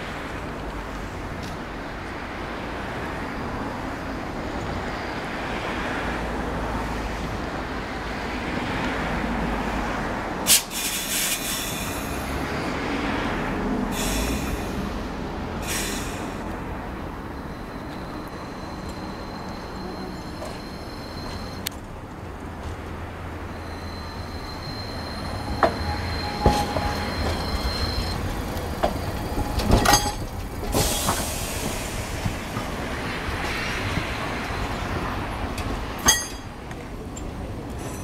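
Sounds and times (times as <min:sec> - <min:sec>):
tram rolling with steady rumble: 0:00.0 - 0:38.0
high wheel squeal: 0:15.6 - 0:21.7, 0:23.4 - 0:32.2.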